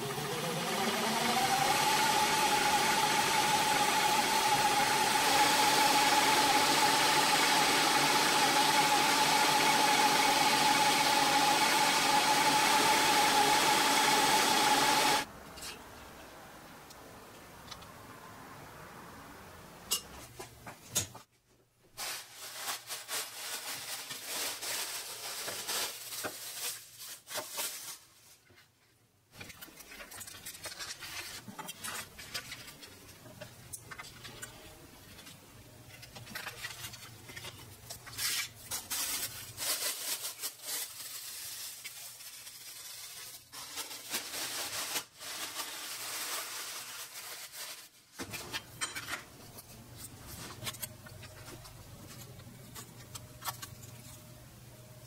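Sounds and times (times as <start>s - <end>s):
plastic sheeting rustling: 21.9s - 48.5s.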